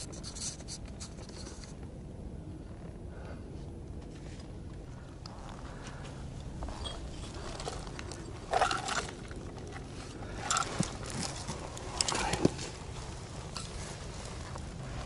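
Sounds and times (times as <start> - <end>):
steady low rumble: 0.0 - 15.0
scraping on rock and gravel: 5.3 - 15.0.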